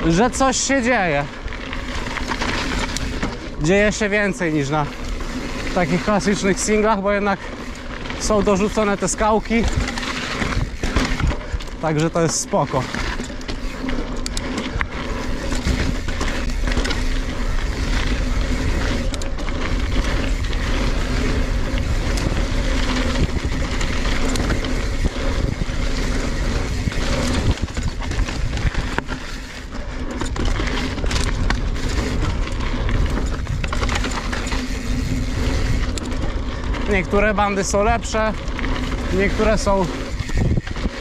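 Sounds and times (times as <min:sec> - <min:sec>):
bike tyres rumbling over rock: 0:00.0 - 0:41.0
wind buffeting microphone: 0:07.3 - 0:11.8, 0:13.6 - 0:41.0
bike knocks and rattles: 0:07.4 - 0:41.0.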